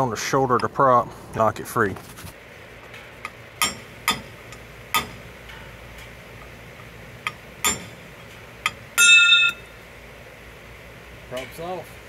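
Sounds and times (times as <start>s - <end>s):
hammer striking metal punch: 3.6s - 5.6s, 7.2s - 9.6s.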